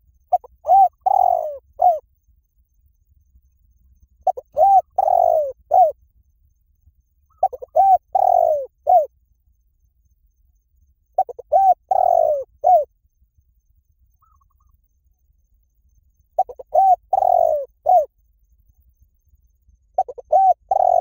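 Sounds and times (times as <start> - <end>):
dove cooing: 0.3 - 2.0, 4.2 - 6.0, 7.3 - 9.1, 11.2 - 12.9, 16.4 - 18.1, 20.0 - 21.0.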